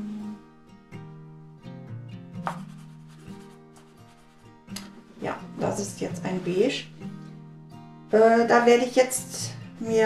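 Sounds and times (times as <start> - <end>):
acoustic guitar plucked notes: 0.0 - 3.8.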